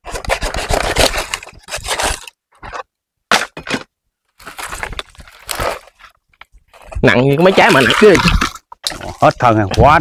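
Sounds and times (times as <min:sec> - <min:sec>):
dry palm fronds scraping and crackling: 0:04.4 - 0:09.4.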